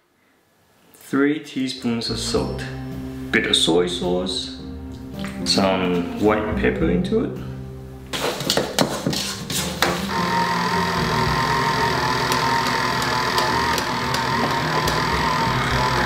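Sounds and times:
stand mixer motor whining: 10.1 - 16.0.

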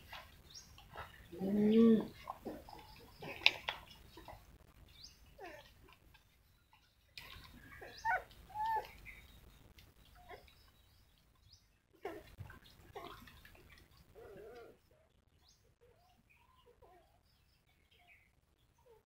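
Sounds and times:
puppies squeaky whimpers: 7.7 - 9.0
puppy wavering whine: 7.8 - 9.0.

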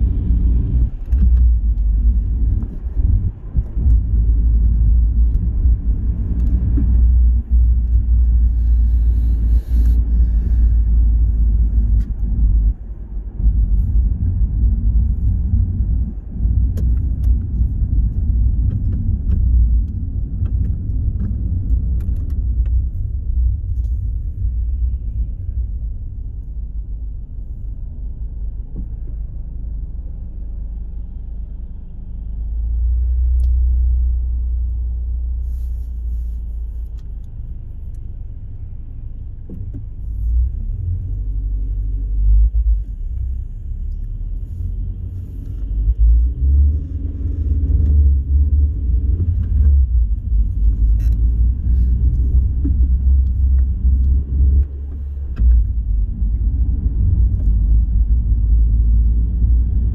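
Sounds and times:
car road and engine rumble: 0.0 - 59.9.

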